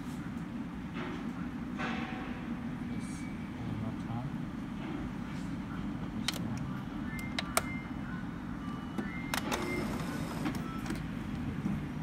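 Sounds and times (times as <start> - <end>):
short printer motor whines: 9.3 - 10.6.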